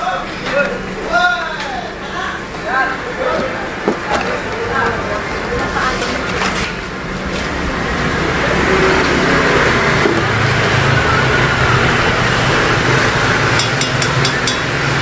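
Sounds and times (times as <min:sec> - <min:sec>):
gas burner noise: 0:00.0 - 0:15.0
metal spoon clinking on pan: 0:13.6 - 0:14.9.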